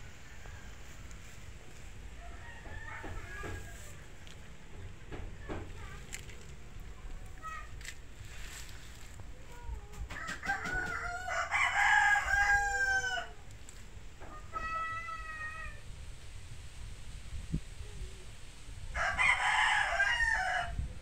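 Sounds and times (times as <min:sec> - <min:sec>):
rooster crowing: 0:02.2 - 0:04.0, 0:10.1 - 0:13.4, 0:19.0 - 0:20.8.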